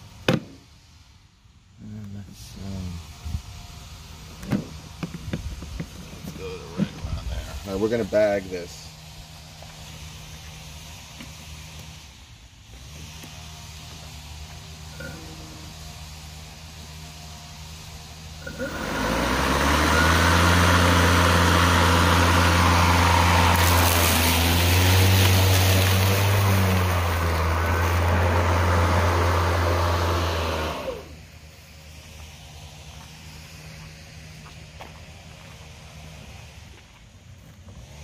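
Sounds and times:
grass being cut: 0:05.8 - 0:33.8, 0:37.5 - 0:38.0
cordless lawn mower running: 0:12.6 - 0:31.9.

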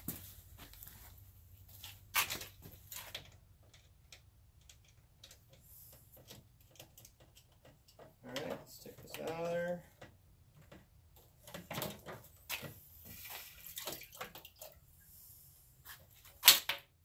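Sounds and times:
faint scattered clicks and knocks: 0:02.4 - 0:12.8.

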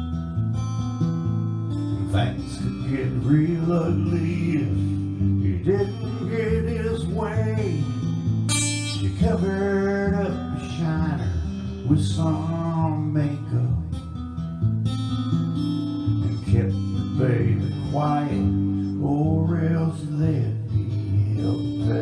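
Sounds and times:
acoustic guitar playing: 0:00.0 - 0:22.0
person singing: 0:02.0 - 0:07.9, 0:16.2 - 0:22.0.

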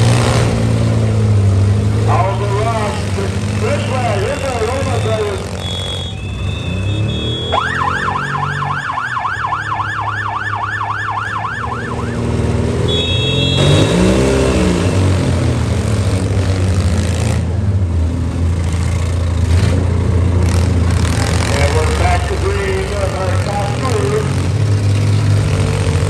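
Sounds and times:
vehicle engines revving: 0:00.0 - 0:26.0
siren yelping: 0:05.1 - 0:12.3.

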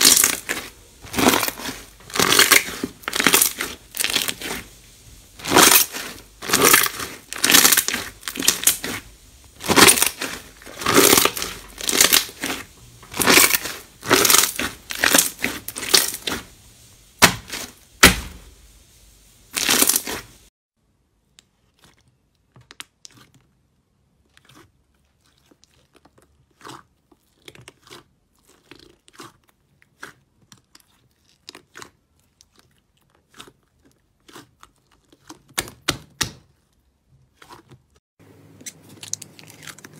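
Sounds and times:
slime squishing: 0:00.0 - 0:18.4, 0:19.5 - 0:20.5, 0:21.4 - 0:39.9.

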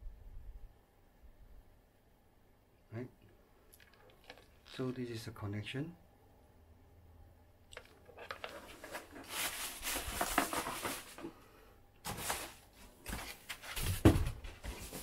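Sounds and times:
foam and cardboard rustling: 0:08.4 - 0:11.3, 0:12.0 - 0:15.0.

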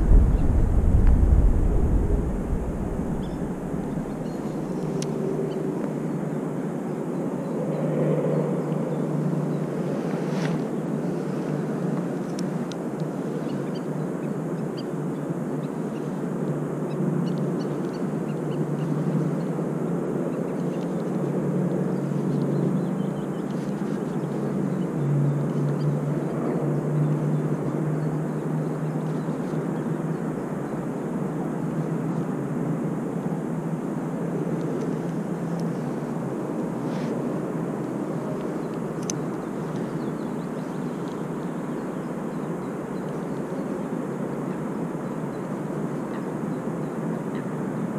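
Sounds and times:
distant engine drone: 0:00.0 - 0:12.1
outdoor noise: 0:00.0 - 0:47.9.

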